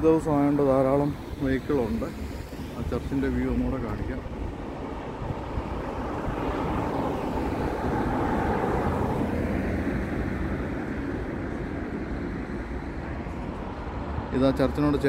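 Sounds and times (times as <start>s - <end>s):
motor vehicle passing: 0.9s - 15.0s.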